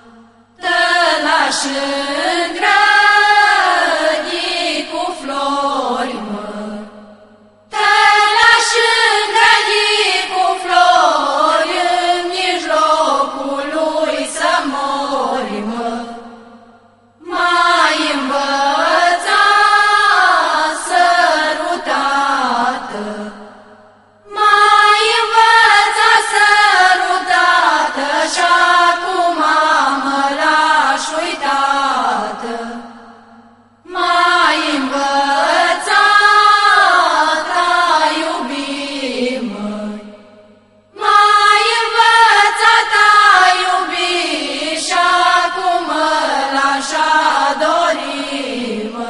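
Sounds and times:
women's choir singing: 0.0s - 49.0s.

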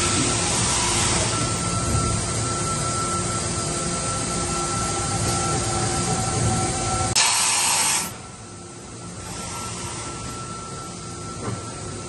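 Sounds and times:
machine humming and whining: 0.0s - 12.0s
compressed air hiss: 7.2s - 8.2s.

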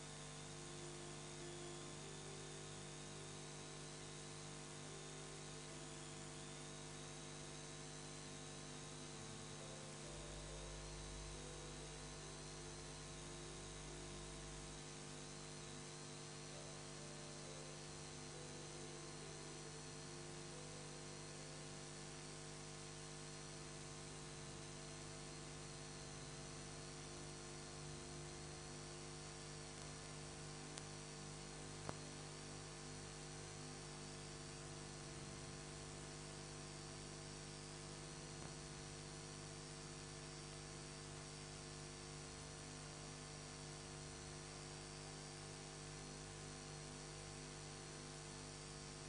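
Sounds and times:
constant hiss: 0.0s - 22.2s, 23.2s - 36.1s
steady electrical hum: 0.0s - 49.0s.

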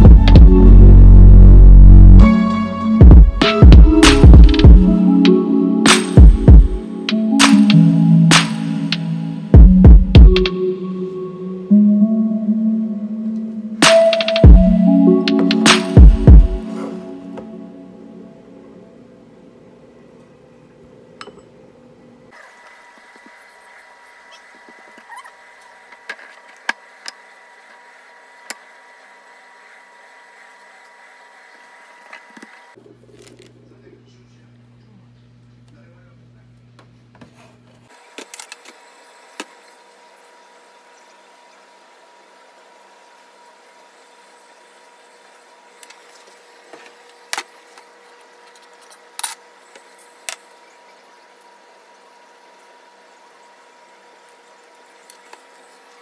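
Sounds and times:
clicks and clinks on kitchen counter: 21.2s - 21.6s.

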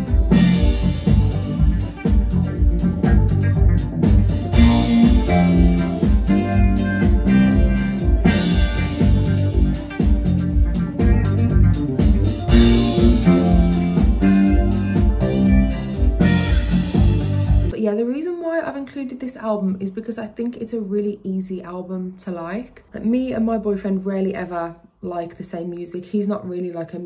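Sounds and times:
bass guitar line: 0.0s - 17.7s
drum kit kick-drum beat: 0.0s - 17.7s
electric guitar: 0.0s - 17.7s.

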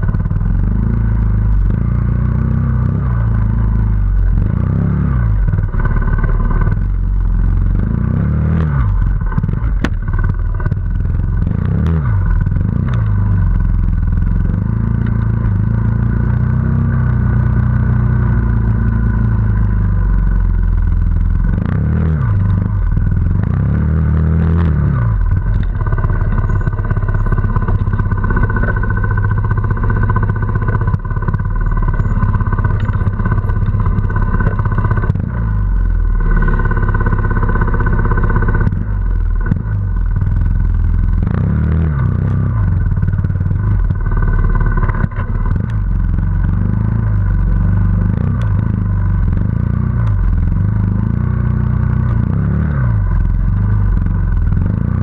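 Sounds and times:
motorcycle engine revving: 0.0s - 55.0s
knocks and clatter: 8.8s - 16.0s, 24.2s - 37.4s.

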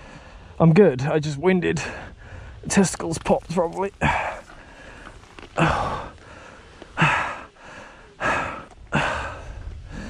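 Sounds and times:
man gasping for breath: 4.0s - 10.0s.

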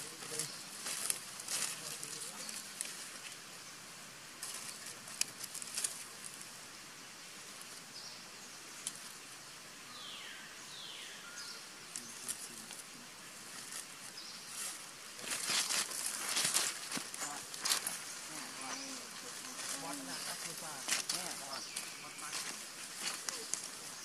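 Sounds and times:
monkey rustling dry leaves: 0.0s - 3.6s, 4.4s - 6.7s, 12.1s - 24.0s
steady high hiss: 0.0s - 24.0s.

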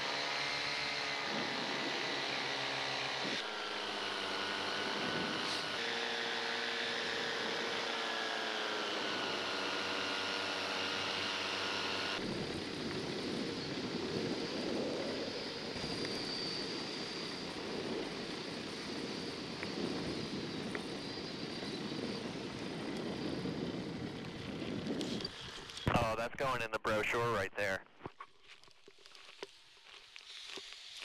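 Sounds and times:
paramotor engine and propeller: 0.0s - 25.9s.

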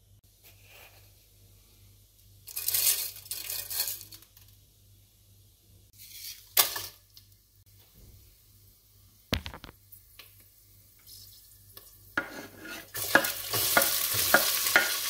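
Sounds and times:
seeds rattling in a metal pot: 2.4s - 4.6s, 12.9s - 15.0s.

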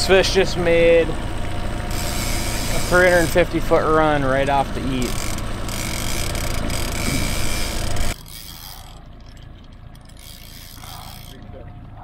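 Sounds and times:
fishing reel whirring and clicking: 1.9s - 3.7s, 4.8s - 11.6s.

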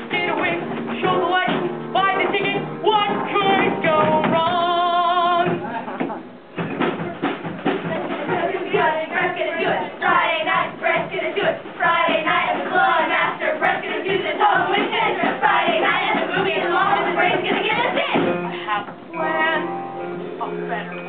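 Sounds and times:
group singing show tune: 7.8s - 19.7s.

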